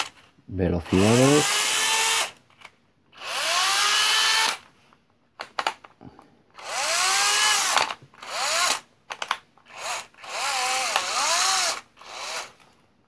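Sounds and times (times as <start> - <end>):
cordless drill motor whine: 0.9 - 2.4, 3.1 - 4.6, 6.6 - 8.8, 9.7 - 12.6.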